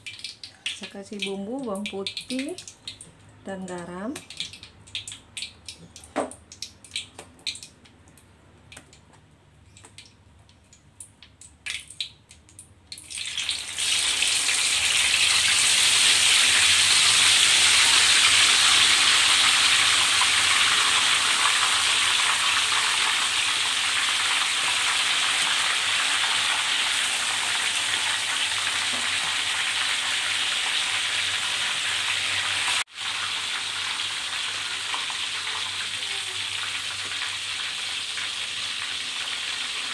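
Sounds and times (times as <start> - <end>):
food sizzling in hot oil: 12.9 - 39.9.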